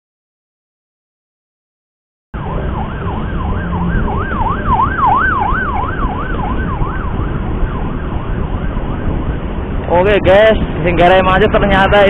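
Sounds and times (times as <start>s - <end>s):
siren wailing up and down: 2.4s - 10.5s
road traffic rumble: 2.4s - 12.0s.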